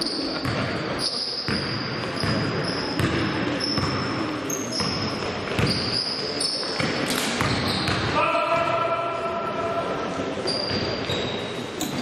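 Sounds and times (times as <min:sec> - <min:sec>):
sneakers squeaking: 0:00.0 - 0:08.7, 0:10.4 - 0:12.0
basketball bouncing on court: 0:00.4 - 0:06.0, 0:06.6 - 0:08.7
players' voices: 0:06.2 - 0:11.0.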